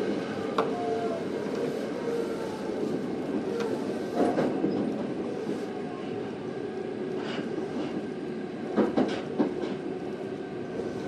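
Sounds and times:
train wheels rumbling on rails: 0:00.0 - 0:11.0
rail joint click: 0:03.5 - 0:05.1, 0:07.1 - 0:09.9.

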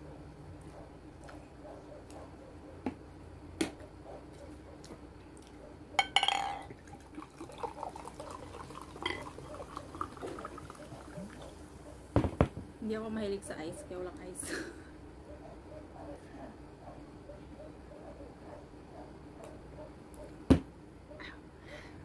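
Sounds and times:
drink pouring into a glass: 0:06.1 - 0:11.8.

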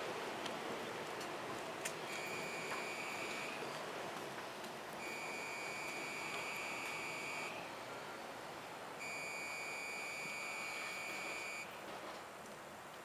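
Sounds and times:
electric train rumble: 0:00.0 - 0:12.8.

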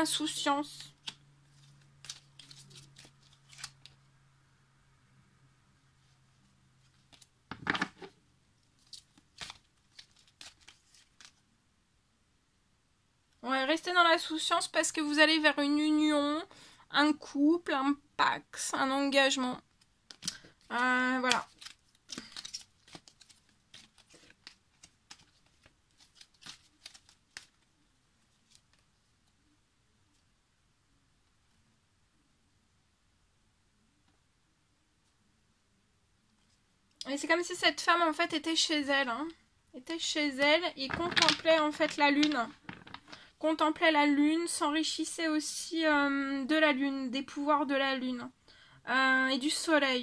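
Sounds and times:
cards being handled: 0:00.7 - 0:04.0, 0:06.8 - 0:11.4, 0:19.8 - 0:28.9, 0:40.5 - 0:43.2
crisp rustling and crinkling: 0:00.8 - 0:04.0, 0:06.8 - 0:11.5, 0:19.8 - 0:29.4, 0:40.2 - 0:43.3.

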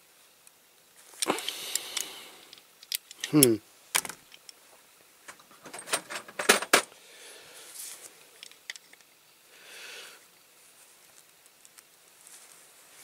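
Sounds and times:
soft rustling: 0:10.5 - 0:13.0.

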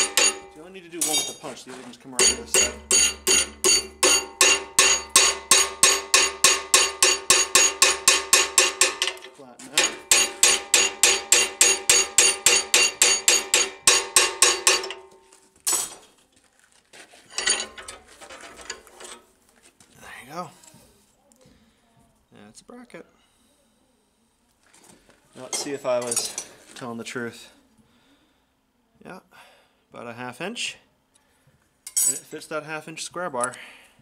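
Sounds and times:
hammer striking steel: 0:00.0 - 0:01.6, 0:02.2 - 0:15.9.

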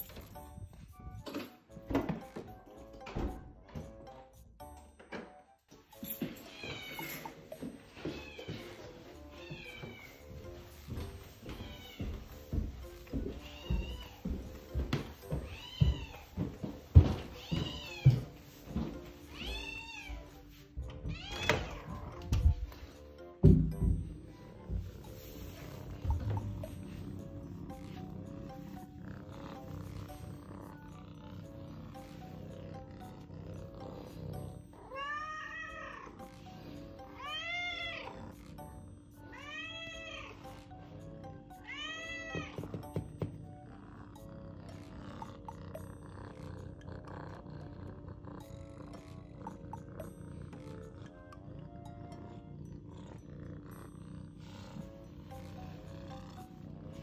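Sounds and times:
soft background music: 0:00.0 - 0:57.0
cat meowing: 0:08.2 - 0:10.3, 0:15.4 - 0:16.4, 0:17.3 - 0:18.4, 0:19.3 - 0:20.3, 0:21.0 - 0:22.2, 0:34.8 - 0:36.2, 0:37.2 - 0:38.2, 0:39.3 - 0:40.5, 0:41.6 - 0:42.7.

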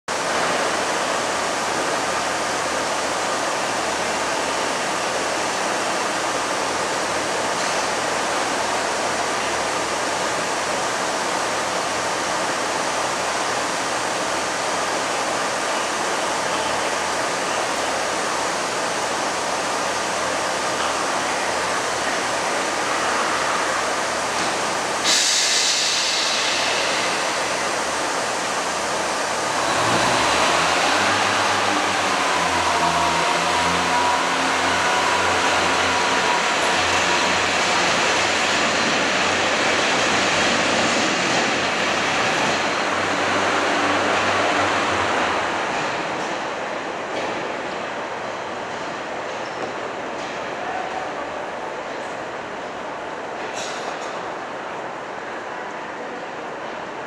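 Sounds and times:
diesel train engines idling: 0:00.1 - 0:50.3
sudden air hiss: 0:24.9 - 0:29.6.

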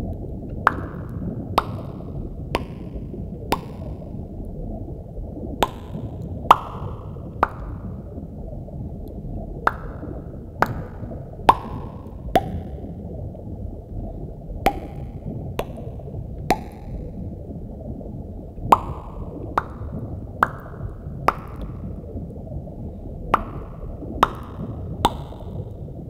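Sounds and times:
water drop plops: 0:00.7 - 0:04.1, 0:05.6 - 0:07.8, 0:10.6 - 0:12.8, 0:14.7 - 0:17.0, 0:18.6 - 0:21.9, 0:23.3 - 0:25.8.

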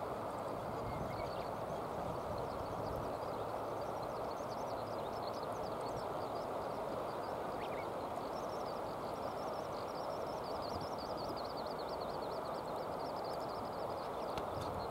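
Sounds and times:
small bird twittering: 0:07.1 - 0:08.9.

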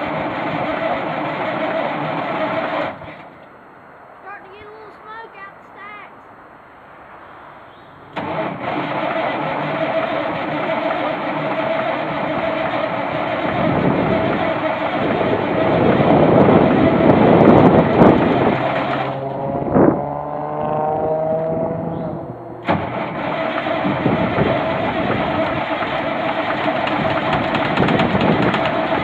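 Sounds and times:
starter motor whine: 0:00.0 - 0:03.3, 0:08.1 - 0:19.9, 0:22.6 - 0:29.0
diesel engine starting and revving: 0:00.0 - 0:03.4, 0:07.8 - 0:29.0.

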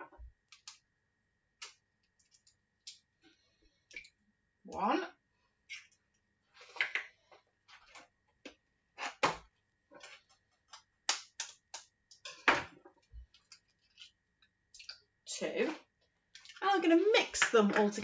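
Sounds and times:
eggs cracking on plastic bowl: 0:10.6 - 0:12.4.

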